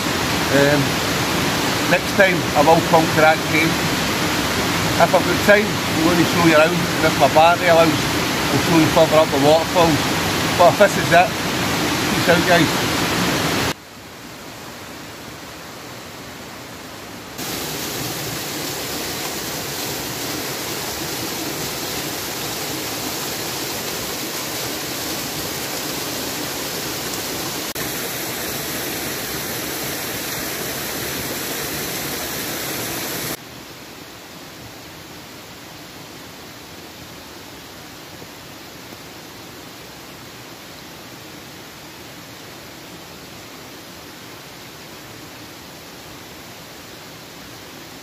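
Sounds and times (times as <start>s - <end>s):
waterfall rushing: 0.0s - 13.8s, 14.6s - 33.4s.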